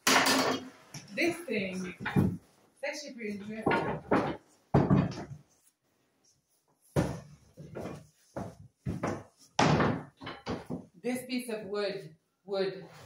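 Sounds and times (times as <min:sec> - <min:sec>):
wooden boards knocking and flexing: 0:01.9 - 0:02.5, 0:03.5 - 0:05.5, 0:06.9 - 0:11.0.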